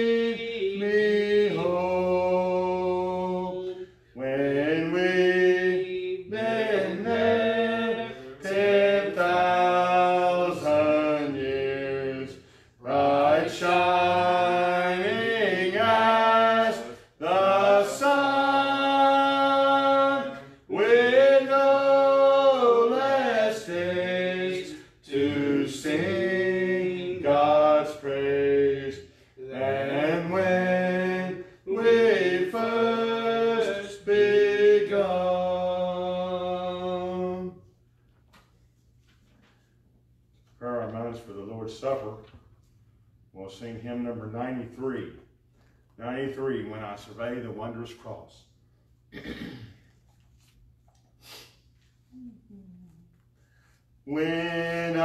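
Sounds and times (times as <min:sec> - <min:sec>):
man singing a hymn unaccompanied: 0:00.0 - 0:37.7, 0:54.0 - 0:55.0.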